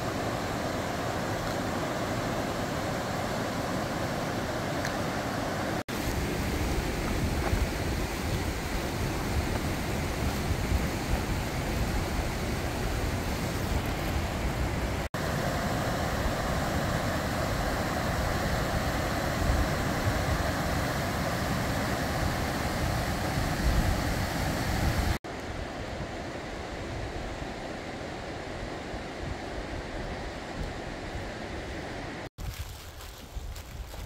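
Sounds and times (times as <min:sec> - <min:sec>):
river rushing over rocks: 0:00.0 - 0:25.6
wind buffeting microphone: 0:17.2 - 0:25.2.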